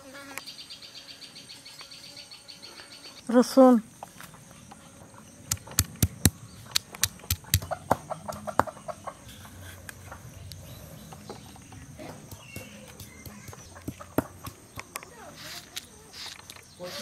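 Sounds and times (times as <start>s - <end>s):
stone roller knocking on stone: 12.1s - 15.0s.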